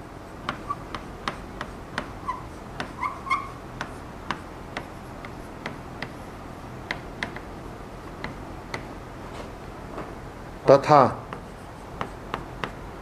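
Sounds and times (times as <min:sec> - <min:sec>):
squeaky chalk chirps: 0:00.4 - 0:01.4, 0:02.0 - 0:03.6
chalk tapping on a blackboard: 0:00.4 - 0:06.3, 0:06.9 - 0:08.9, 0:11.2 - 0:12.8.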